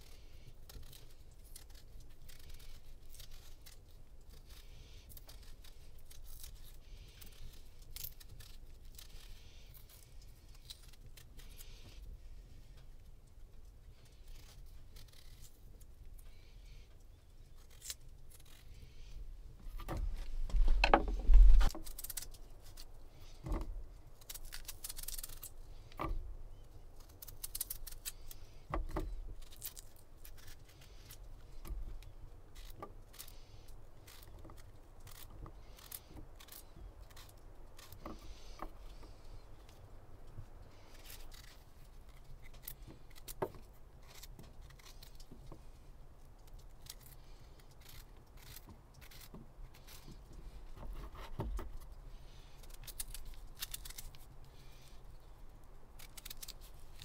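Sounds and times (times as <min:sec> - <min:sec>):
knife scraping potato: 0:46.8 - 0:51.8.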